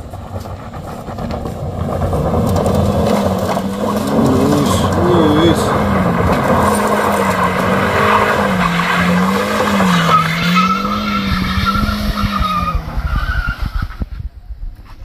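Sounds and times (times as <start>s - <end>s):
truck engine running hard: 0.8s - 12.0s.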